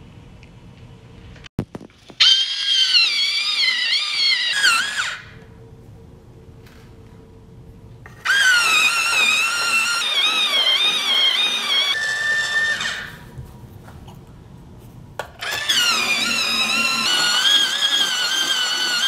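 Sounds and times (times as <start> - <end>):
electric pencil sharpener whining: 2.2 - 5.3, 8.2 - 13.2, 15.4 - 19.0.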